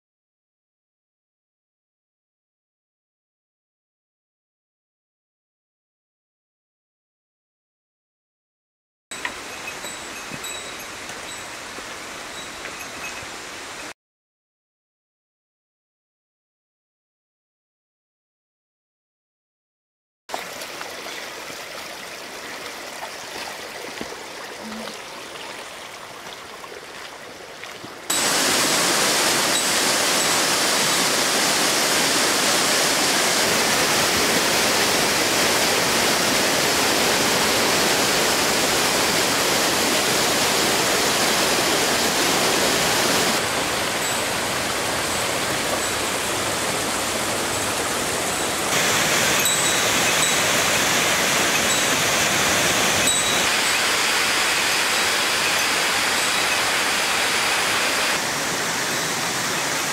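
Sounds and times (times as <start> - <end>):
waterfall rushing onto boulders: 9.2 - 14.0, 20.3 - 59.9.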